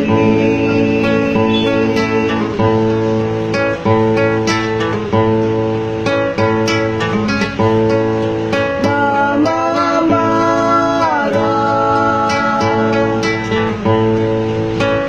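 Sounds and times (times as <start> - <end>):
person singing: 0.0 - 3.0, 8.7 - 13.9
acoustic guitar strumming: 0.0 - 15.0.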